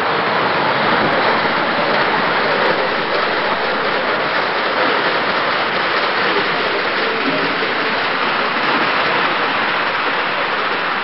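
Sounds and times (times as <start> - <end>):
visitors chatter: 0.0 - 11.0.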